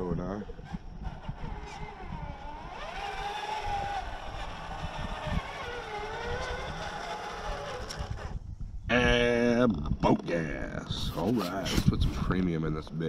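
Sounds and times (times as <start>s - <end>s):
toy truck motor whining: 0.4s - 8.4s.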